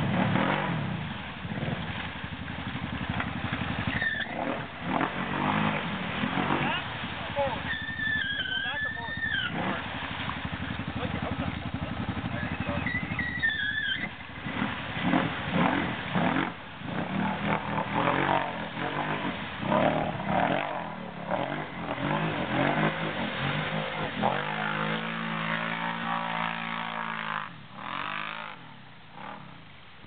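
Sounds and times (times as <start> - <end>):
atv engine revving: 0.0 - 29.6
high squeal: 3.9 - 4.4, 7.6 - 9.6, 12.3 - 14.2.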